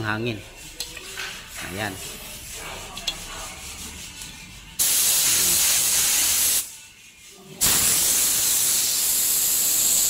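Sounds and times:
spray gun air hissing: 4.8 - 6.7, 7.6 - 10.0.

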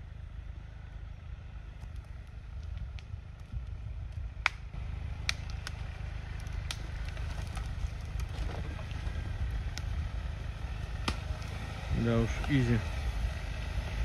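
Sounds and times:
engine rumble: 0.0 - 14.0
sharp cracks and clicks: 4.4 - 8.3.

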